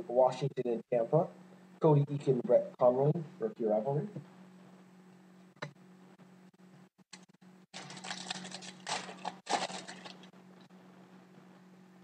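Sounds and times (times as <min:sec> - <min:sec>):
low electrical hum: 0:00.0 - 0:12.0
crinkly rustling of packaging: 0:07.7 - 0:10.3.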